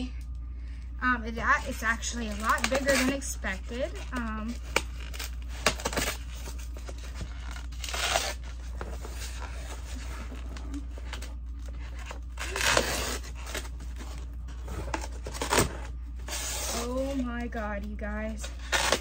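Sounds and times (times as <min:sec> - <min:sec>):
rustling and tearing cardboard: 0:01.5 - 0:19.0
cardboard box being cut open: 0:12.4 - 0:13.7.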